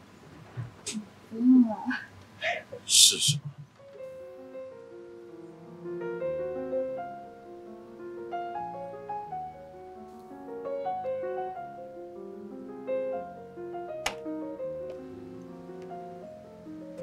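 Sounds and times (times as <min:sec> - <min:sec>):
gentle piano melody: 0:03.8 - 0:17.0.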